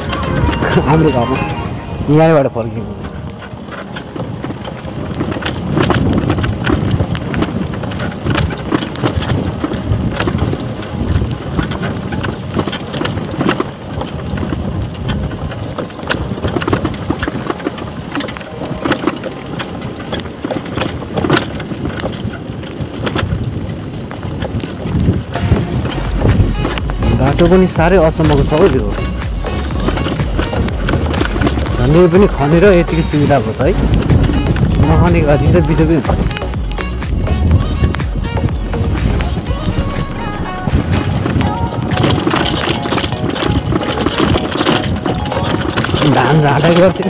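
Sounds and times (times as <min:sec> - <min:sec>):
motorcycle engine running: 0:00.0 - 0:47.0
wind noise on microphone: 0:00.0 - 0:47.0
knocks and rattles: 0:24.3 - 0:47.0.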